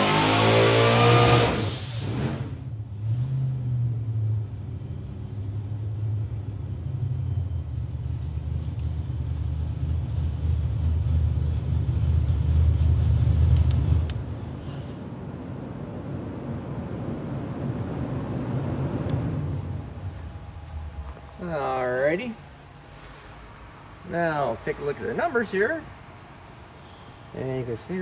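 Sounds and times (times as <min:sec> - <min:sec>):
engine full-throttle roar: 0:00.0 - 0:25.7
engine deep idle: 0:04.2 - 0:14.8.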